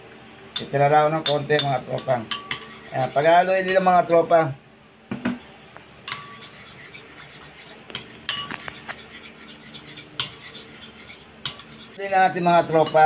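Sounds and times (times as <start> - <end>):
cutlery scraping a bowl: 0.6 - 3.9, 6.1 - 12.1.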